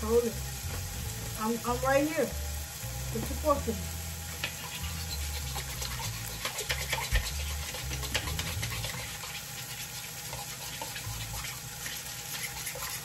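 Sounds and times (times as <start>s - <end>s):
fork stirring eggs in a dish: 4.4s - 13.0s.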